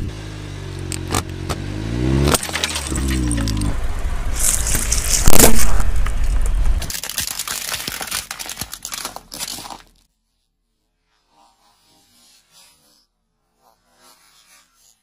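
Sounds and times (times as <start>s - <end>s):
plastic container cracking: 2.3s - 3.8s, 4.4s - 10.0s
water beads crackling and clicking: 4.4s - 10.0s.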